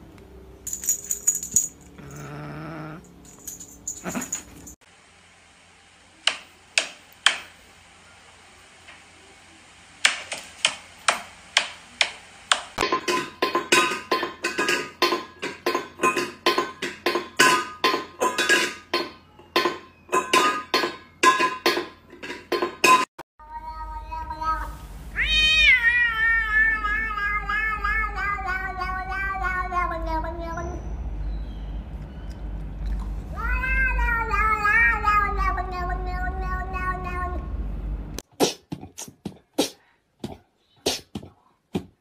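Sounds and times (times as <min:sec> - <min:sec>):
metal bowl clanking on tile: 0:12.8 - 0:23.1.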